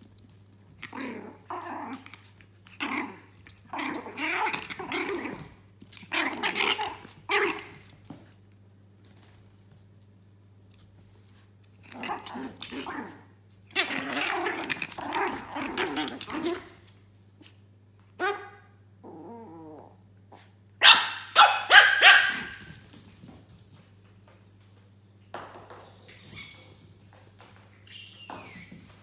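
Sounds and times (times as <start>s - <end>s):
puppies growling: 0.8s - 7.8s, 11.8s - 16.8s, 19.0s - 20.5s
puppies barking: 20.8s - 22.6s.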